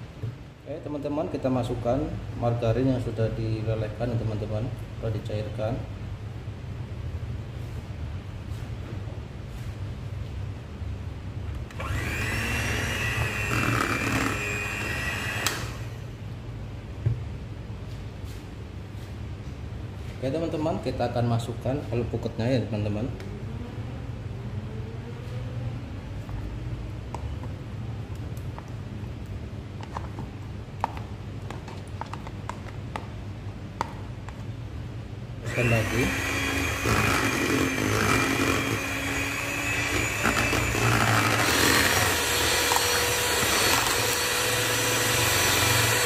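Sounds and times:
electric hand mixer whining: 11.8 - 16.0, 35.4 - 46.0.

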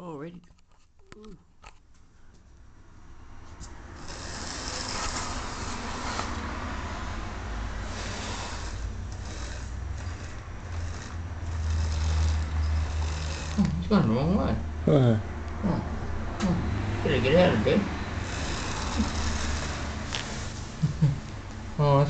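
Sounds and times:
electric motor whirring: 3.9 - 6.8, 7.7 - 13.9, 17.4 - 20.8
wheels rumbling on rails: 4.0 - 13.8, 17.0 - 21.6.

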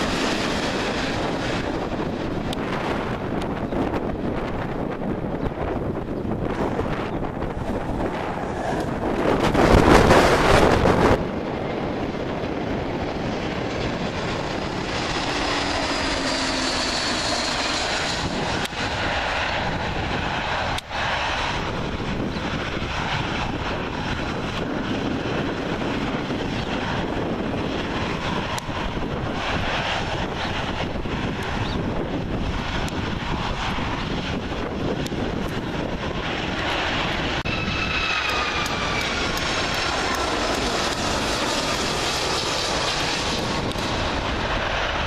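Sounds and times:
jet engines roaring: 0.0 - 45.0
loud rushing burst: 6.3 - 11.2, 13.8 - 19.8.

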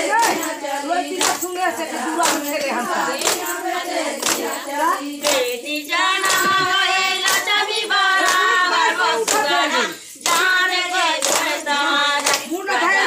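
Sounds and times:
women singing a folk song: 0.0 - 13.0
sharp hand claps: 0.2 - 0.5, 1.1 - 1.5, 2.2 - 2.6, 3.2 - 3.6, 4.2 - 4.5, 5.2 - 5.6, 6.2 - 7.6, 8.2 - 8.5, 9.3 - 9.6, 10.2 - 10.6, 11.2 - 11.6, 12.2 - 12.6.

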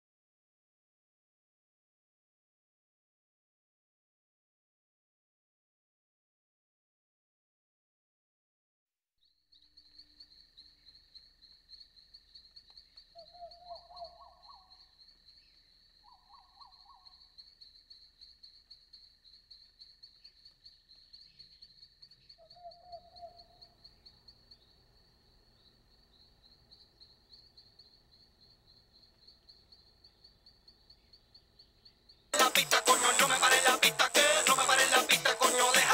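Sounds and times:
insects trilling: 9.5 - 35.9.

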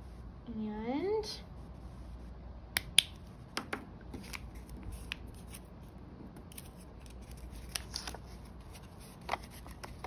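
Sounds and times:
paper rustling: 6.5 - 10.0.

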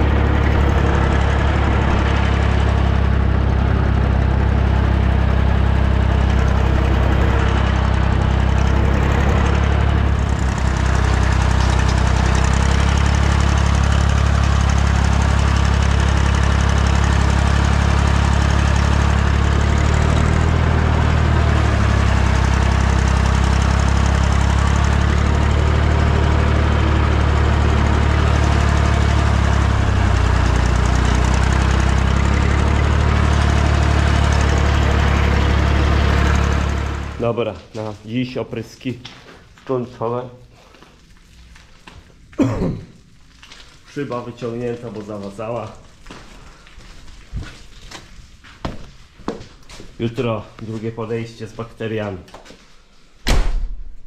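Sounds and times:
tractor diesel engine drone: 0.0 - 37.7.

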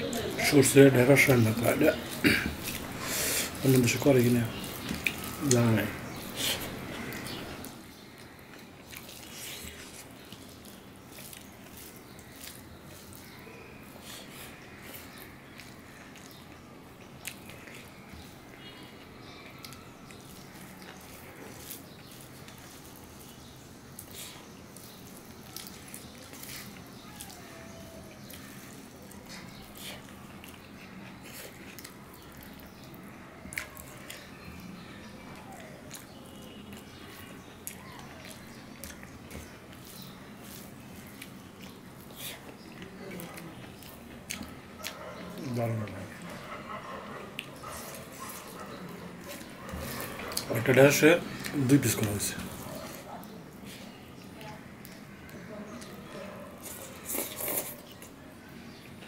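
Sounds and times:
person chewing with mouth smacks: 0.1 - 46.4, 47.0 - 59.0
fingers squishing wet food: 0.1 - 59.0
fingers squishing rice on plate: 1.3 - 18.4.

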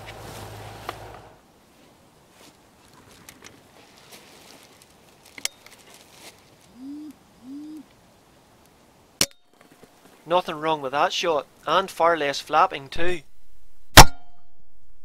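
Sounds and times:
wood pigeon cooing: 6.6 - 8.0.

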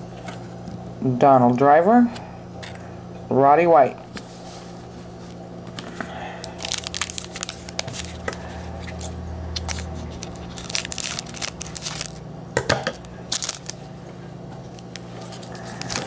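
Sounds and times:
foil wrapper crinkling: 5.2 - 12.2, 12.9 - 13.9, 14.7 - 16.0.

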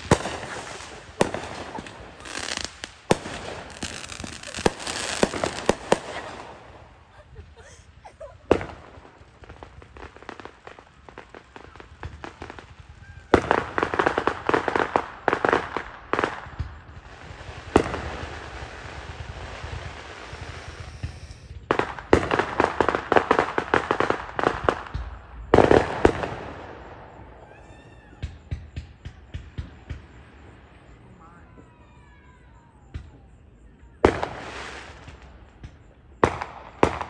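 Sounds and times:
hissing crackle: 0.0 - 27.3
fireworks bangs and crackling pops: 0.0 - 37.0.

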